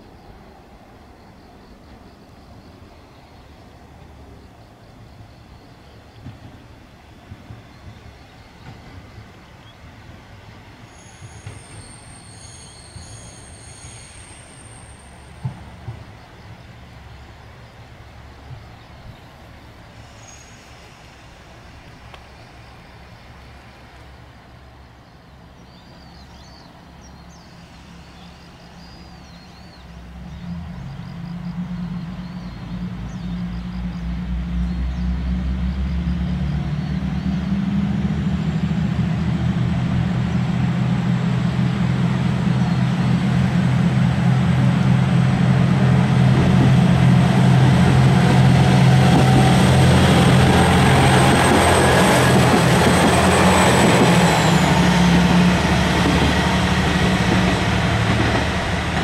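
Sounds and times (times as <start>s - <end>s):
diesel railcar engine: 0.0s - 59.0s.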